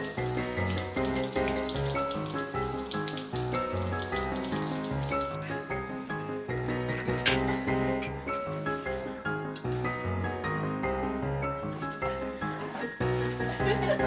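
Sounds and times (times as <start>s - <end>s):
tap water splashing into sink: 0.0s - 5.4s.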